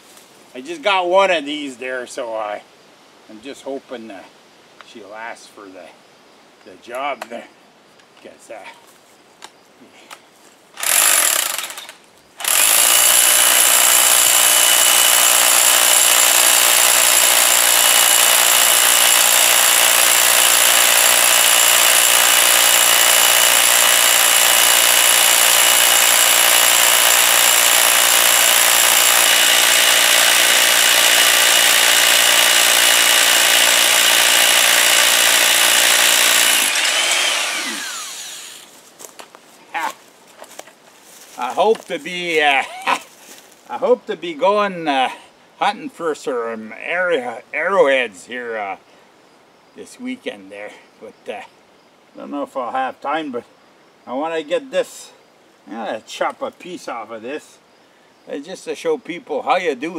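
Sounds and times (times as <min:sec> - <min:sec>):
rotary hammer drilling into stone: 0:10.8 - 0:38.7.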